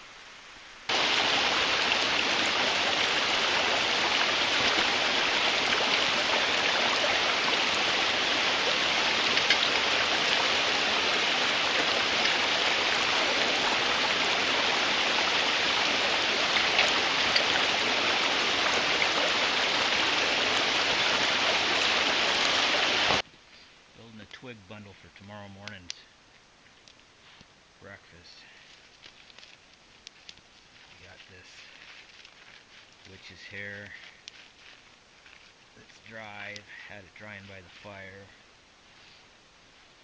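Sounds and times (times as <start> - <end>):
water rushing over small waterfall: 0.9 - 23.2.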